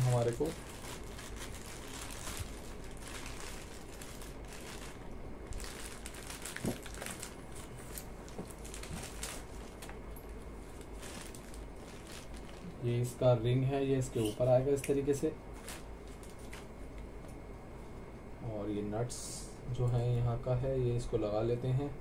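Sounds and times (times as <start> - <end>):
plastic bag crinkling: 0.0 - 13.2, 15.5 - 16.7.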